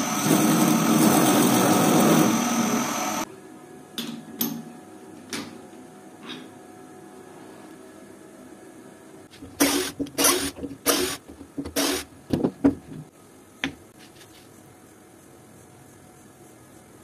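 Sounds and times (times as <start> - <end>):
power drill boring into wood: 0.0 - 3.2, 9.6 - 12.1.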